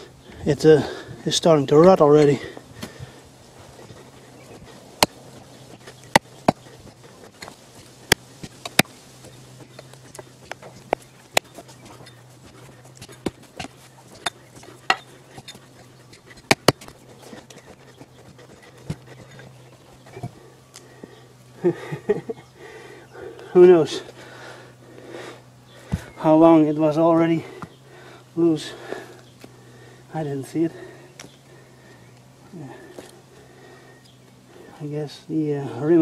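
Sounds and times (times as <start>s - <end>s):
faint low hum: 0.0s - 36.0s
sharp clicks and knocks: 13.0s - 19.5s.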